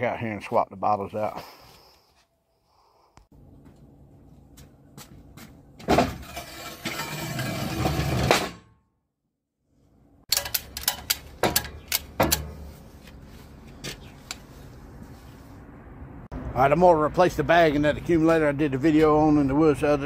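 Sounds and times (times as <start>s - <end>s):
metal bottle scraping and knocking: 5.9s - 8.6s.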